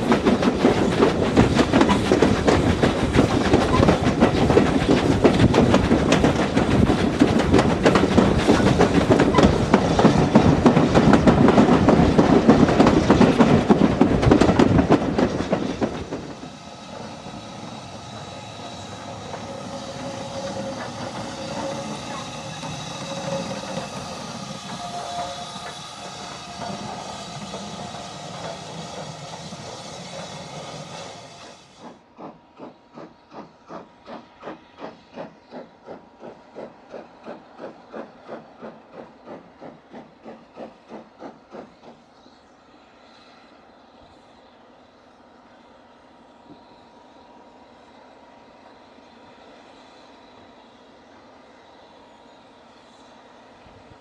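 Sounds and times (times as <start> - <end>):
steam locomotive exhaust beats: 0.0 - 54.0
steam locomotive hissing: 0.0 - 54.0
steam train running: 0.0 - 54.0
faint whistling tones: 16.6 - 31.7, 41.6 - 54.0.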